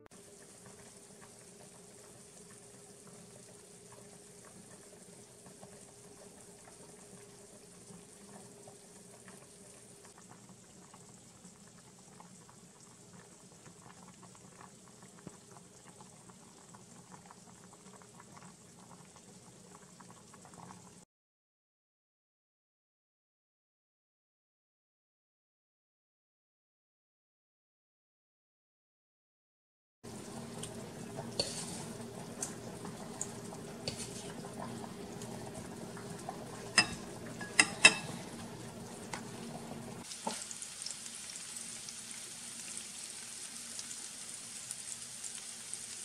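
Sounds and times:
sausages sizzling in a pan: 30.1 - 46.0.

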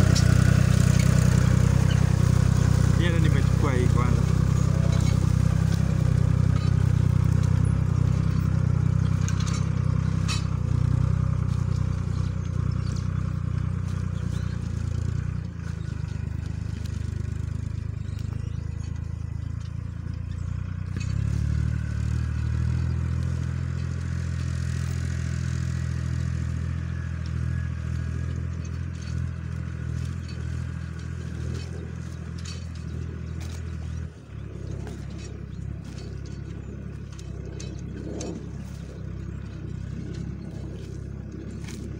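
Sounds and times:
tractor engine under load: 0.0 - 41.9.

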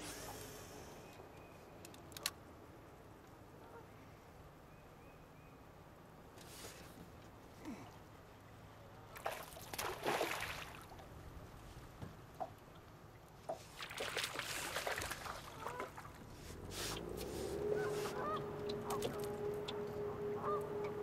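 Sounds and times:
water splashing against metal hull: 13.5 - 19.9.

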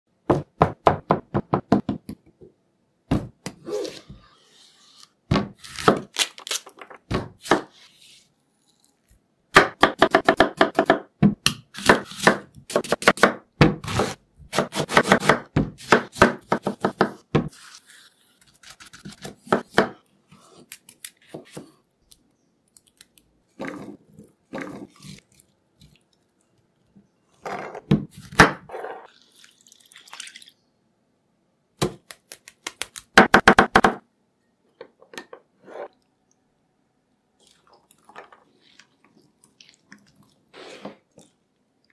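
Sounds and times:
knife chopping on plastic board: 9.6 - 17.5.

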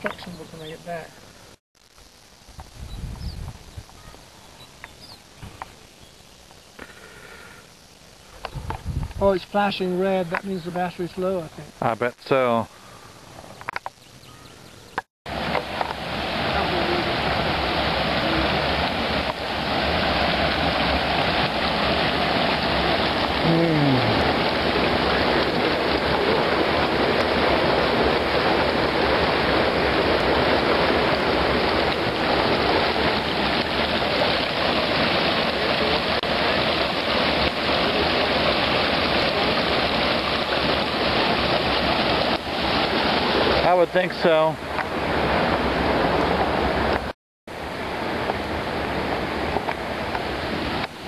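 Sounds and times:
creek water rushing over rocks: 15.3 - 51.0.

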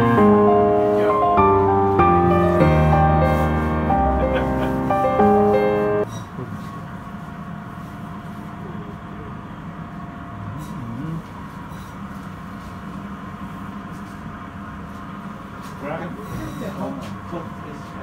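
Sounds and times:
low machinery hum: 0.0 - 18.0.

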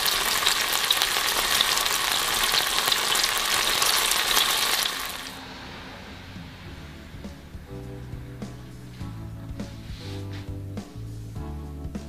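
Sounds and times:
chicken sizzling in oil: 0.0 - 5.4.

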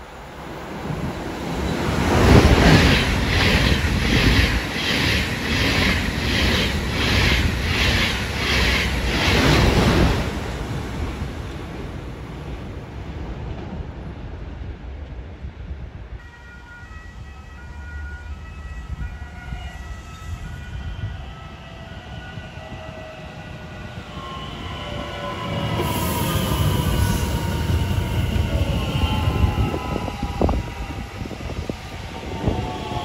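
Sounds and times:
train wheel rumble: 0.0 - 12.2, 20.3 - 33.0
electric train whining: 16.3 - 33.0.

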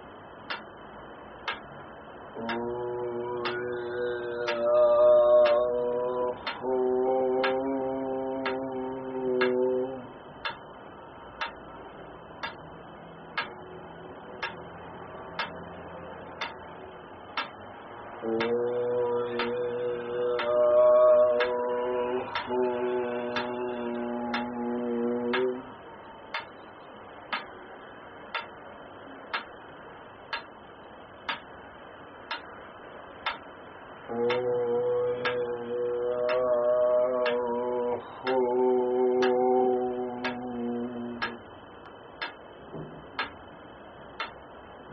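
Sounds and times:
metronome ticking: 0.4 - 0.7, 1.4 - 1.8, 2.4 - 8.8, 9.4 - 11.8, 12.4 - 12.7, 13.3 - 14.7, 15.3 - 16.7, 17.3 - 17.6, 18.2 - 20.7, 21.3 - 21.6, 22.2 - 25.6, 26.3 - 27.6, 28.3 - 28.6, 29.3 - 29.6, 30.3 - 30.6, 31.2 - 31.5, 32.3 - 32.6, 33.2 - 33.5, 34.2 - 37.6, 38.2 - 39.5, 40.1 - 41.5, 42.2 - 42.4, 43.2 - 43.4, 44.2 - 44.4.

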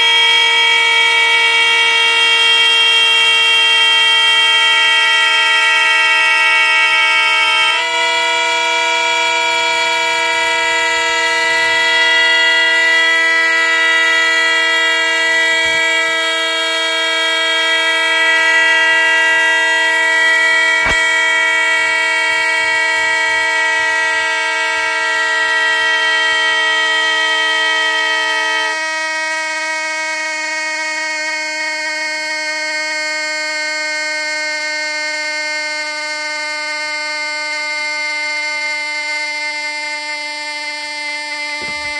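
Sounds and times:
toy trumpet horns chord: 0.0 - 41.9
single click: 20.8 - 21.1.

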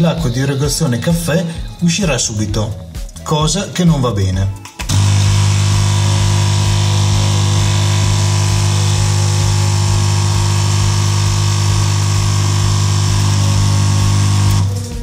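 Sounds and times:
espresso machine pump humming: 4.9 - 15.0.

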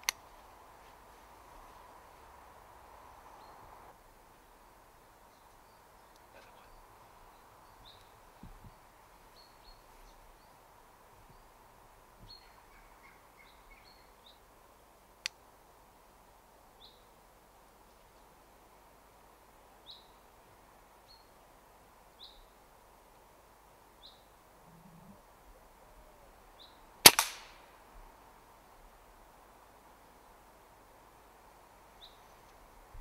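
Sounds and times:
small birds chirping: 4.7 - 11.6, 12.2 - 14.5
sharp click: 27.1 - 27.5.

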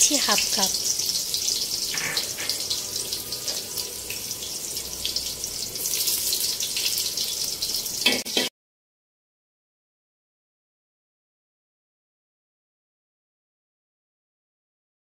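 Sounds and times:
onions sizzling in hot oil: 0.0 - 8.5.

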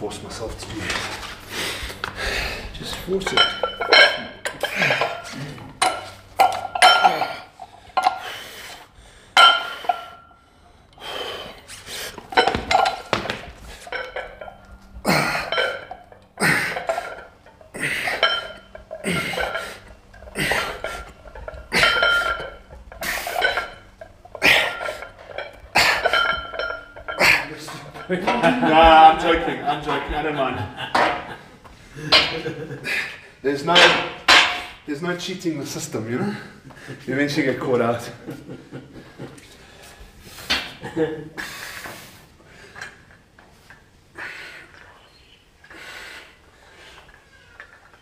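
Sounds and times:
metal clinks from weights: 3.2 - 8.2, 13.8 - 28.4
man grunting and exhaling: 15.0 - 15.7, 16.4 - 18.3, 19.0 - 21.1.

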